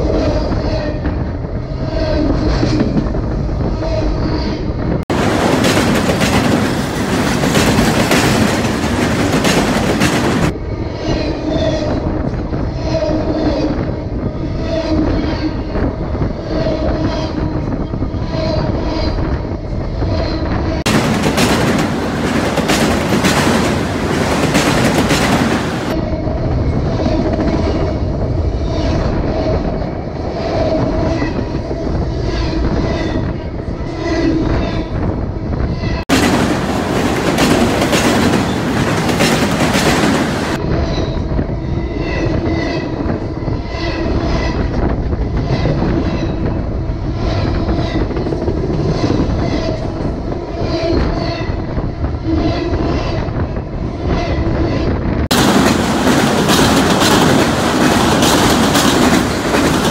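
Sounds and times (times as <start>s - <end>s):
steel wheels ringing on track: 5.1s - 10.5s, 20.9s - 26.0s, 36.1s - 40.6s, 55.3s - 59.9s.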